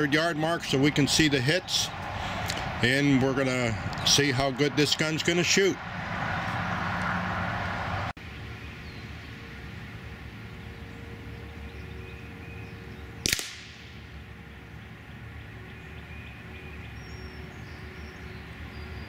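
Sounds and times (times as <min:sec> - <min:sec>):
steady background noise: 0:00.0 - 0:19.0
rifle shot crack: 0:13.2 - 0:13.9.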